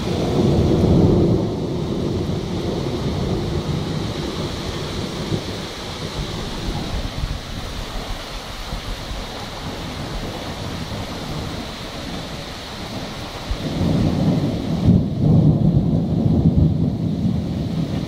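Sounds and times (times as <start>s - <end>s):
low rumble of thunder: 0.0s - 18.0s
steady rain: 0.0s - 18.0s.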